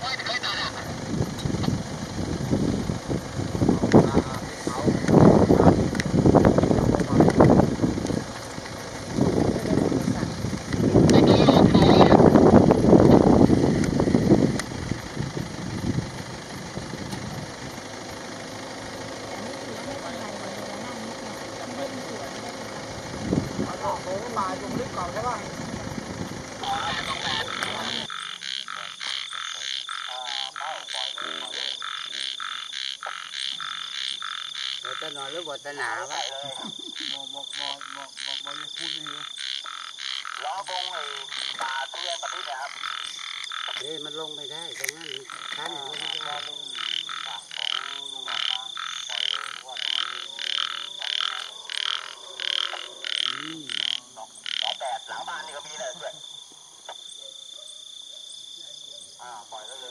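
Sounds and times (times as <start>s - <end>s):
frogs calling: 0.0s - 59.9s
steady high trill: 9.1s - 35.0s.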